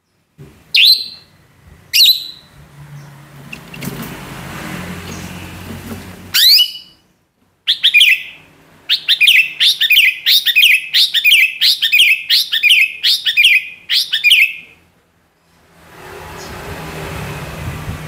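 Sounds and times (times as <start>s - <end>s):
bird calling sharp repeated notes: 0.7s - 1.3s, 1.9s - 2.6s, 6.3s - 7.0s, 7.7s - 14.8s.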